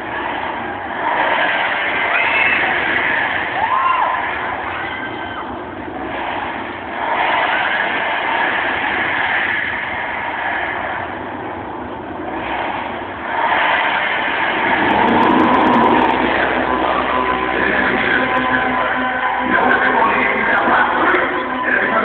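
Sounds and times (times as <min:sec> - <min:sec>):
distorted crowd cheering and screaming: 0:00.0 - 0:22.0.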